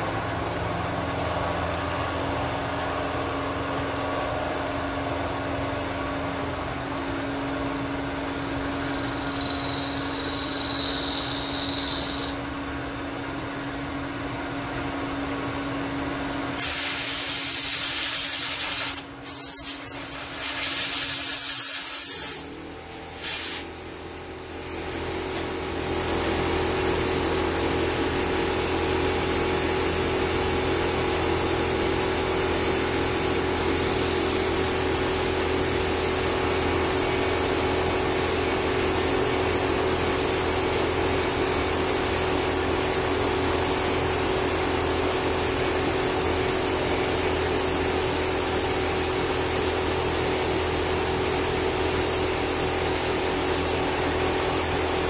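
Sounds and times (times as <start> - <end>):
machine running with low hum: 0.0 - 55.0
compressed air blow gun hissing: 16.2 - 25.6.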